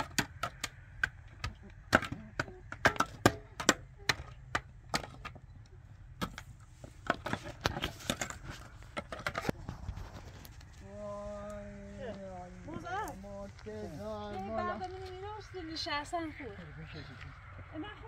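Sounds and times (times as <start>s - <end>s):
pickaxes striking stony soil: 0.0s - 5.4s, 6.2s - 9.6s.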